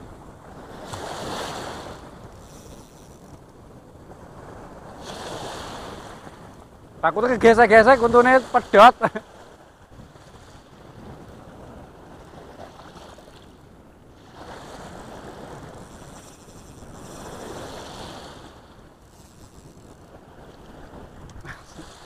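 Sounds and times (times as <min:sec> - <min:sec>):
small waves washing onto sand: 0:00.0 - 0:03.3, 0:04.1 - 0:22.0
wind on microphone: 0:00.0 - 0:22.0.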